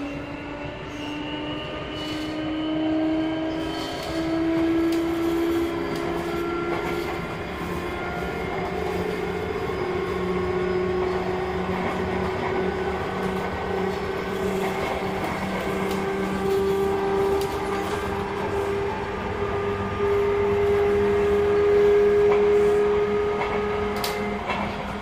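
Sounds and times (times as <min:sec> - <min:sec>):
electric train rolling rumble: 0:00.0 - 0:25.0.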